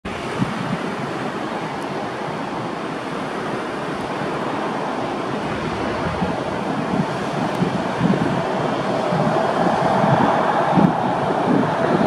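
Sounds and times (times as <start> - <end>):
jet engines rushing: 4.3 - 12.0.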